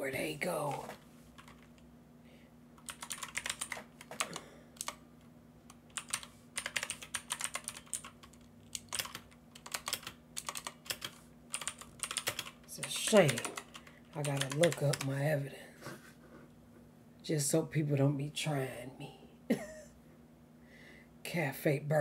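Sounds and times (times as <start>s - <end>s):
faint low hum: 0.0s - 22.0s
typing on computer keyboard: 1.4s - 1.8s, 2.8s - 5.0s, 5.8s - 15.1s.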